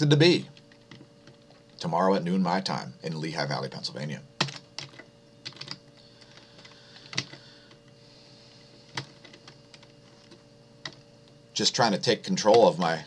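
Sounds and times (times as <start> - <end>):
faint electrical hum: 0.0 - 13.0
computer keys clicking: 4.4 - 5.8, 6.6 - 7.4.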